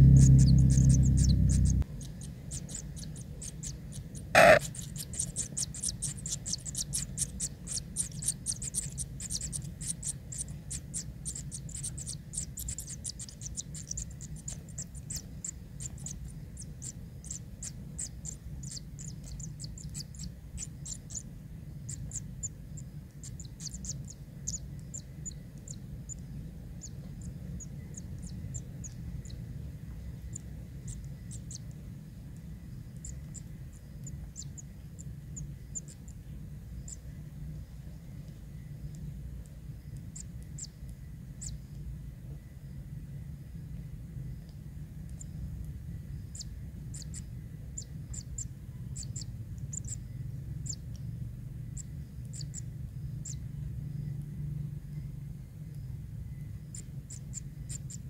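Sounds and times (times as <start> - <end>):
nestlings high ticking calls: 0.0 - 29.5, 32.7 - 37.0, 41.4 - 41.8, 46.1 - 51.1, 51.8 - 54.1, 56.6 - 58.0
low steady hum: 0.0 - 58.0.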